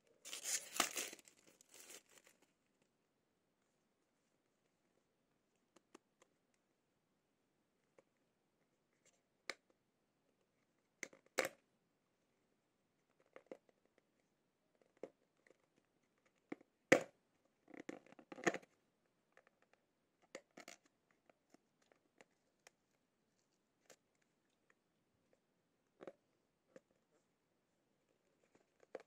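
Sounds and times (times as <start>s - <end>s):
cardboard rustling: 0.3s - 2.4s.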